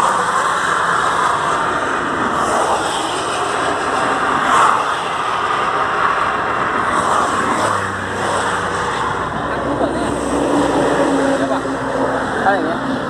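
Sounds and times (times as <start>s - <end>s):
vehicle whoosh: 0.0s - 13.0s.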